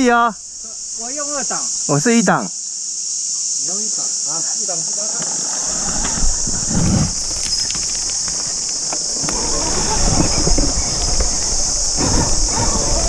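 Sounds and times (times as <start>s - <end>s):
insects droning: 0.0s - 13.0s
motorcycle rumbling over rocks: 5.7s - 13.0s
stones and twigs clicking: 5.8s - 11.9s.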